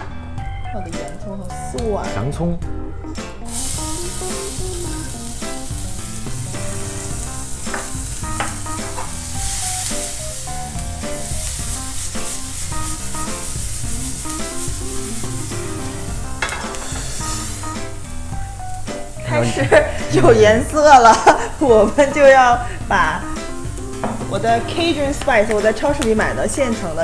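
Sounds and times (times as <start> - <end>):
onion and garlic sizzling in oil: 3.3 - 27.0.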